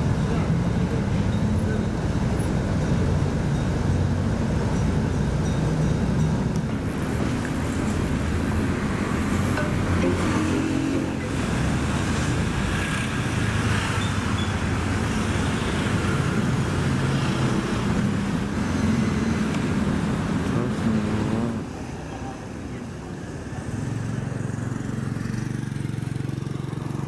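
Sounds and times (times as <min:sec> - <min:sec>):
road noise: 0:00.0 - 0:27.0
motor scooter engines passing: 0:05.3 - 0:27.0.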